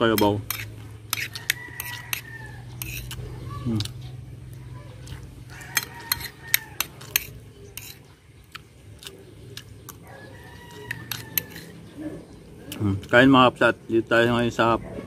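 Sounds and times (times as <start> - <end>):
metal spoon scraping a plate: 0.0 - 4.0, 5.0 - 8.2, 9.9 - 11.9.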